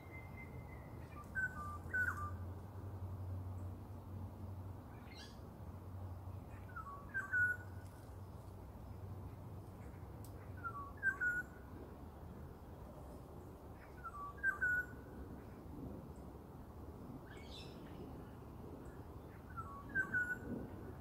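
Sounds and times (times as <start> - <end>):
bird singing fluty whistled phrase: 0.0 - 2.4, 6.7 - 7.7, 10.6 - 11.5, 14.0 - 14.9, 19.5 - 20.4.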